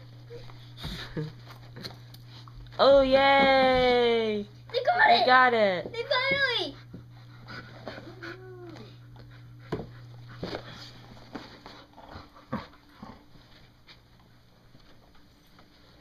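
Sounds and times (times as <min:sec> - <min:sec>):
steady low hum: 0:00.0 - 0:16.0
dog whining: 0:07.9 - 0:09.0.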